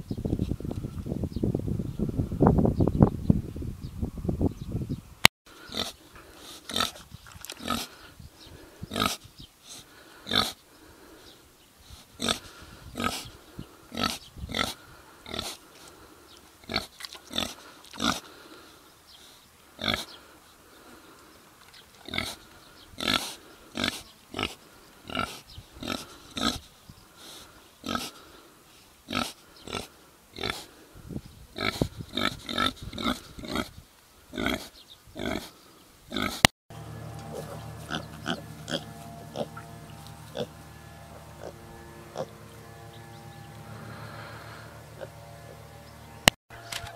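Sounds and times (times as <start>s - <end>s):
pigs grunting: 5.7s - 6.0s, 6.6s - 7.0s, 37.3s - 42.5s.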